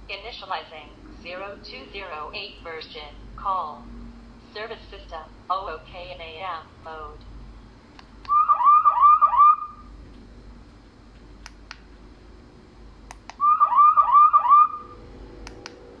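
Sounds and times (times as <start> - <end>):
chirping beeps ringtone: 8.3 - 9.9, 13.4 - 14.9.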